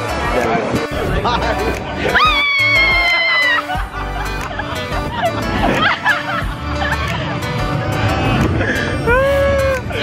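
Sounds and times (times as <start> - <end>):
music: 0.0 - 10.0
riders yelling and shrieking: 2.1 - 3.7.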